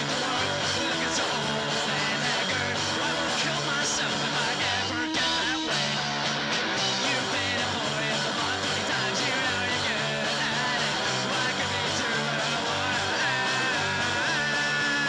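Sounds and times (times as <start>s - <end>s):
electric guitar: 0.0s - 15.0s
punk rock band playing: 0.0s - 15.0s.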